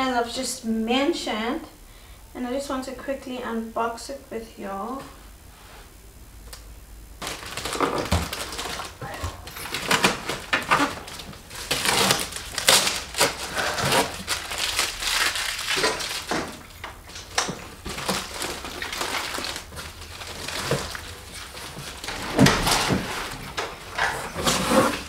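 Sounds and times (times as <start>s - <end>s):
packing tape pulled off: 7.2s - 23.3s
cardboard and packing rustling: 7.2s - 25.0s.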